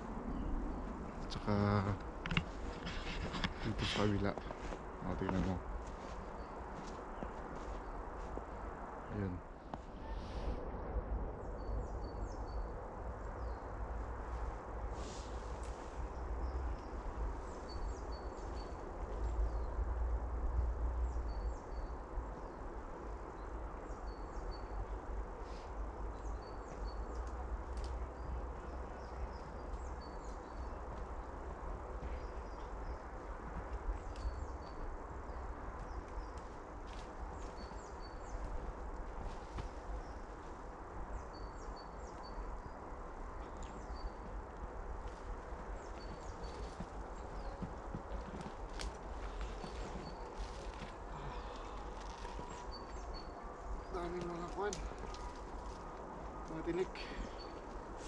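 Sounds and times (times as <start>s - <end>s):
wind rumbling on microphone: 0.0s - 58.0s
small birds chirping: 21.0s - 58.0s.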